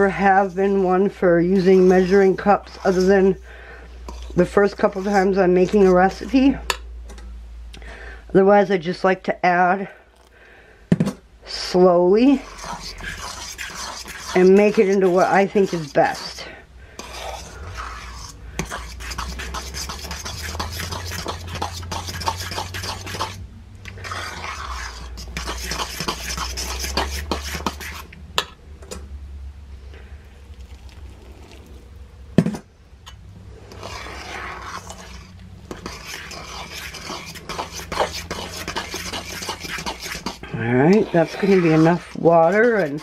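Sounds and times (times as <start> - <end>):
utensil scraping metal bowl: 0.0 - 6.8, 11.5 - 28.5, 33.5 - 43.0
low steady hum: 0.0 - 43.0.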